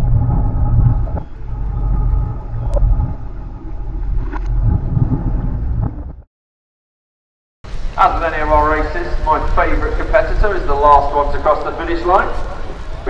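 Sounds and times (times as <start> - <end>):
faint steady hum: 0.0 - 6.2
muffled underwater rumble: 0.0 - 6.3
click: 0.4 - 3.1.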